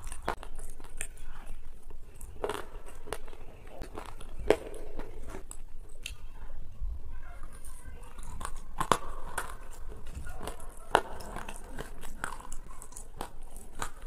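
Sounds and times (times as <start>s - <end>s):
sharp clicks and crunches: 0.0s - 6.3s, 7.4s - 14.0s
chewing: 0.0s - 6.5s, 7.2s - 14.0s.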